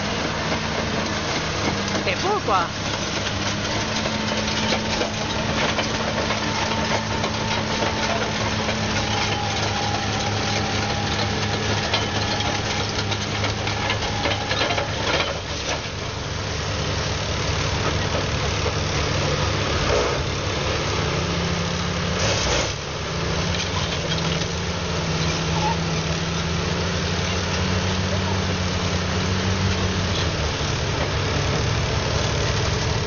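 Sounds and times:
steel tracks clanking: 0.0 - 16.4
bulldozer diesel engine under load: 0.0 - 33.0.

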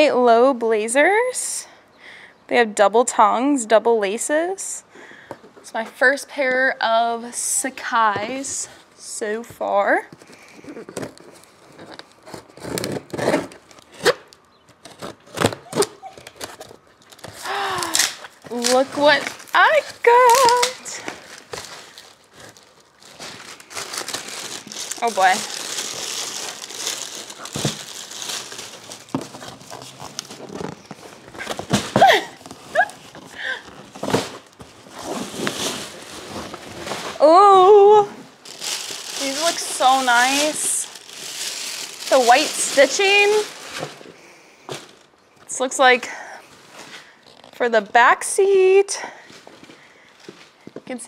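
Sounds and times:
cardboard box and plastic rustling: 7.9 - 47.6.

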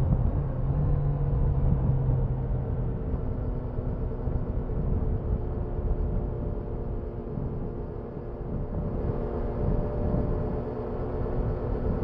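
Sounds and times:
road rumble: 0.0 - 12.0.

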